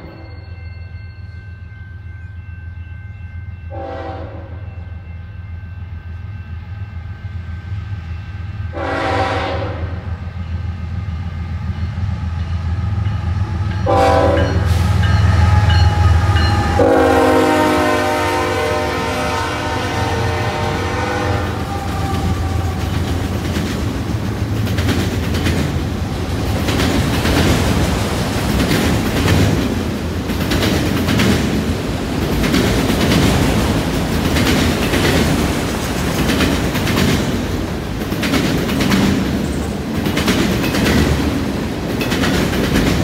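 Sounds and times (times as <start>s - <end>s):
train horn blasts: 0.0s - 0.5s, 3.7s - 4.8s, 8.7s - 10.1s, 13.8s - 23.1s
locomotive engines rumbling: 10.4s - 43.0s.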